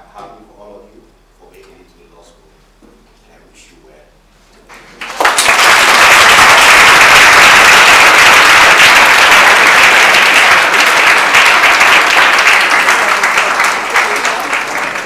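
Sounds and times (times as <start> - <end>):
large audience applauding: 4.7 - 15.0.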